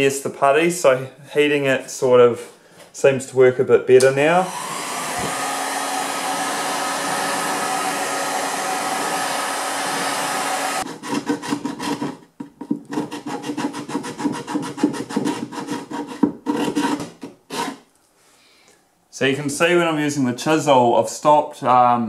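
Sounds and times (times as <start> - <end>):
heat gun blowing: 4.0 - 10.9
chisel scraping putty: 10.8 - 17.9.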